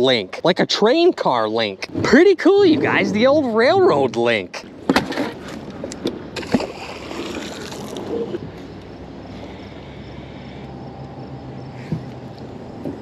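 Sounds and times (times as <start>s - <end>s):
faint low hum: 6.4s - 13.0s.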